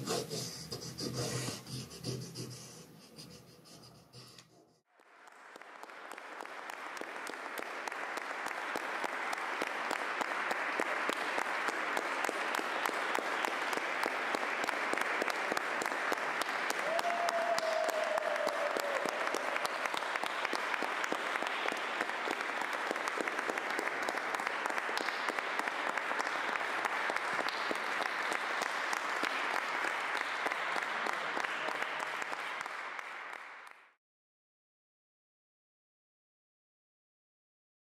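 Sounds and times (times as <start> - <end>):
audience applauding: 4.9 - 34.0.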